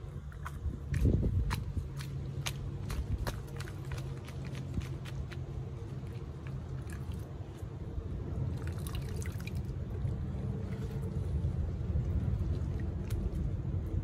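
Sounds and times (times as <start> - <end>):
small water splashes: 0.0 - 14.0
steady low rumble: 0.0 - 14.0
water dripping and sloshing: 0.0 - 14.0.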